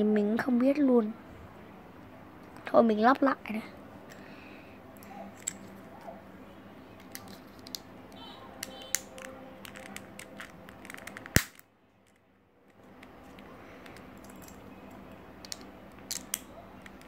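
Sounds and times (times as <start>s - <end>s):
puzzle cube rattle: 8.6s - 12.2s.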